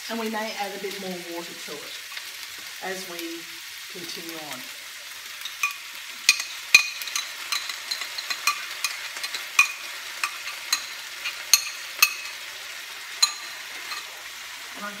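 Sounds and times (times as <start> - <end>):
vegetables sizzling in a frying pan: 0.0 - 15.0.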